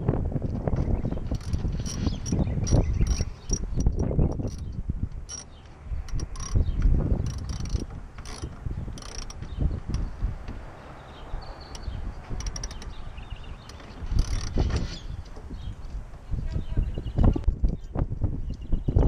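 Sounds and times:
wind rumble on microphone: 0:00.0 - 0:19.0
hand ratchet clicking: 0:01.3 - 0:10.1, 0:11.7 - 0:13.0, 0:13.6 - 0:14.9.

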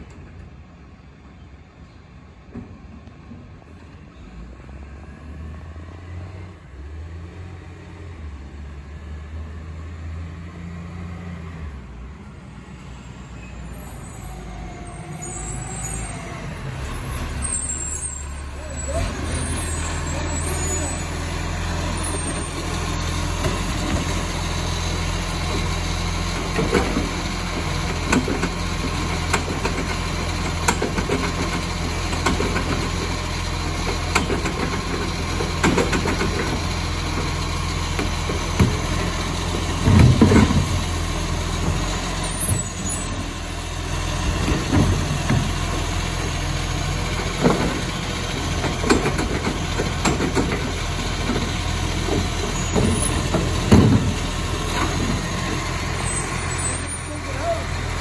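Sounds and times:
garbage truck diesel engine running: 0:12.0 - 0:58.0
hydraulic arm lifting bins: 0:13.3 - 0:58.0
clunks and knocks of bins: 0:25.4 - 0:33.2, 0:33.8 - 0:40.9, 0:44.2 - 0:45.9, 0:47.0 - 0:55.8.

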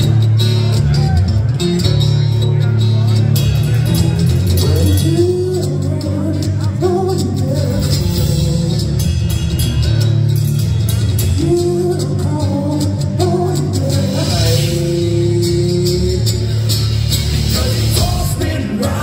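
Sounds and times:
acoustic-electric guitar: 0:00.0 - 0:19.0
bass guitar: 0:00.0 - 0:19.0
drums: 0:00.0 - 0:19.0
man singing: 0:04.5 - 0:09.3, 0:11.3 - 0:19.0.

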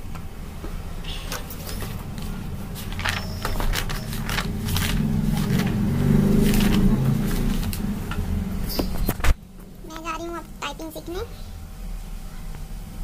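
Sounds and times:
paper pages rustling: 0:01.3 - 0:07.9.

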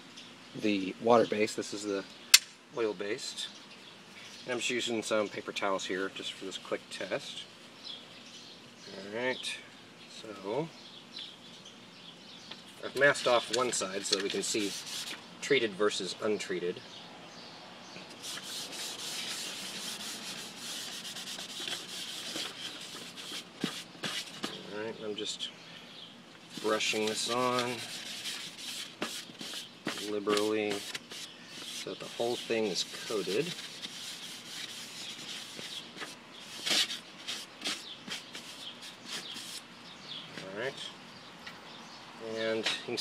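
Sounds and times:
fingers rubbing tape on board: 0:14.4 - 0:15.2, 0:18.1 - 0:24.6, 0:26.5 - 0:39.6.

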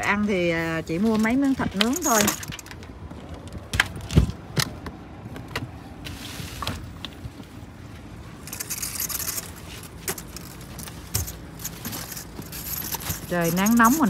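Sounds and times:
low steady background rumble: 0:00.0 - 0:14.0
crinkling plastic: 0:06.1 - 0:14.0.

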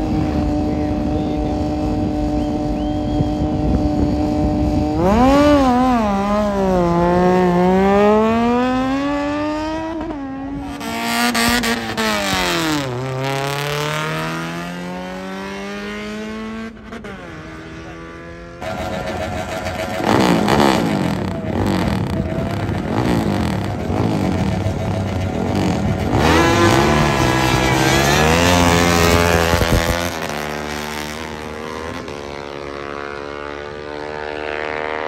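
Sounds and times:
motorcycle engine revving: 0:00.0 - 0:35.0.

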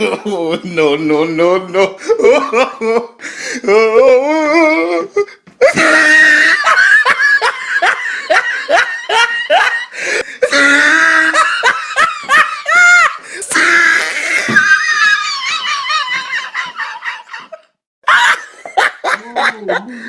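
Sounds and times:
hearty human laughter: 0:05.6 - 0:20.0.

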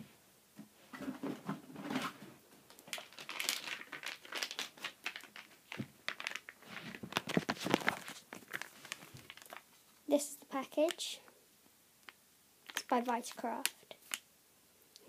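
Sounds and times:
plastic packaging crinkling: 0:02.7 - 0:10.0, 0:12.6 - 0:14.2.

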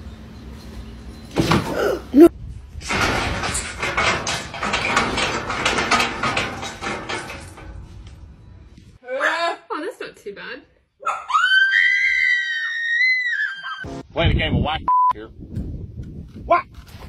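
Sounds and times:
metal clattering and clanking: 0:02.8 - 0:08.9
loud rising cry: 0:11.0 - 0:13.9.

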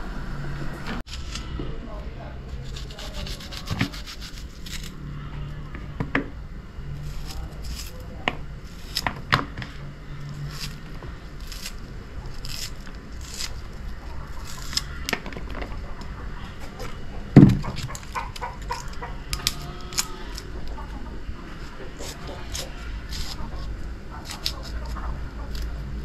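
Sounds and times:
knife slicing onion: 0:02.5 - 0:04.9, 0:07.0 - 0:09.6, 0:10.3 - 0:15.2, 0:21.6 - 0:26.0.

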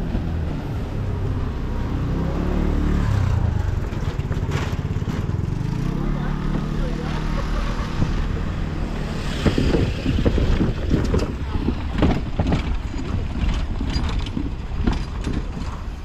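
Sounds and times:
truck engine driving: 0:00.0 - 0:16.0
wind noise on microphone: 0:07.9 - 0:16.0.

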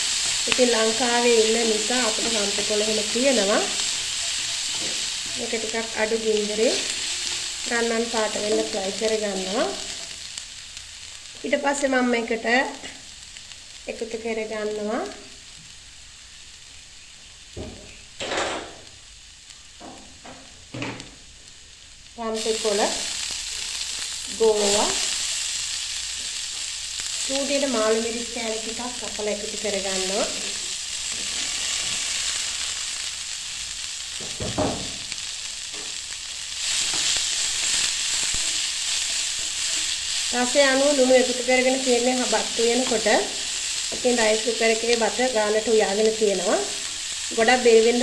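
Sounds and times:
spatula stirring in pan: 0:00.0 - 0:07.7, 0:35.8 - 0:41.6
food sizzling in oil: 0:00.0 - 0:48.0.

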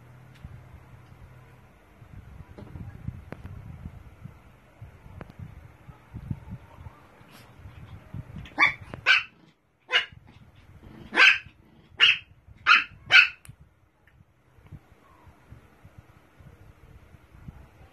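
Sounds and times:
small dog yapping: 0:08.4 - 0:10.2, 0:11.0 - 0:13.4.

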